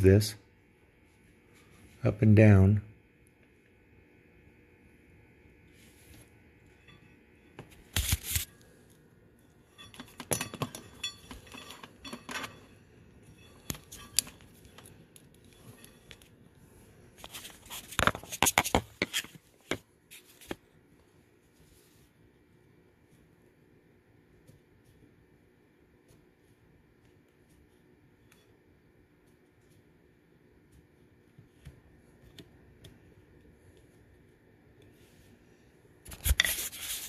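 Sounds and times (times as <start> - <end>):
screwdriver clicks and scrapes: 13.4 - 16.3.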